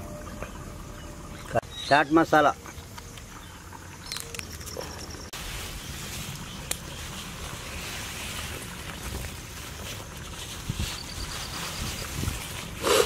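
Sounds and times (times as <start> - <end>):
fries rustling on plastic sheet: 5.4 - 13.0.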